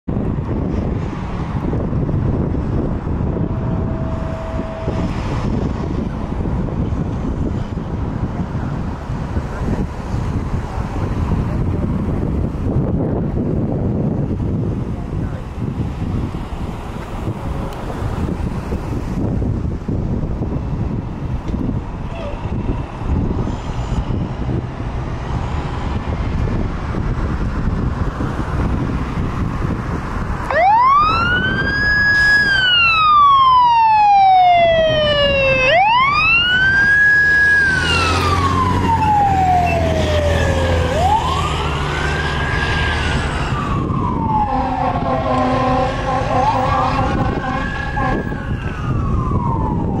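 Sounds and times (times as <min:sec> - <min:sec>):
fire engine siren wailing: 0:01.7 - 0:06.8, 0:30.4 - 0:50.0
truck engine pulling away: 0:22.6 - 0:50.0.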